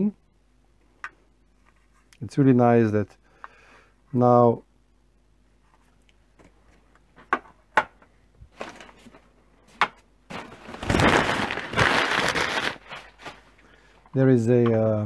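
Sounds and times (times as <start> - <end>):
paper packaging crumpling: 10.3 - 13.5.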